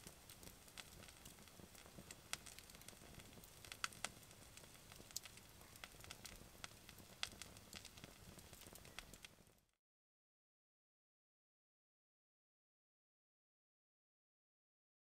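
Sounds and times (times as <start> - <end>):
wood fire crackling: 0.0 - 9.8.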